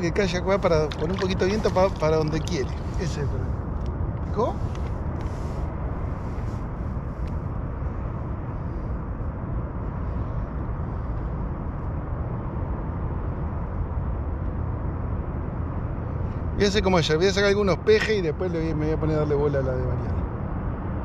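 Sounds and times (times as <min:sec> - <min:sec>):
light wind on microphone: 0:00.0 - 0:16.6.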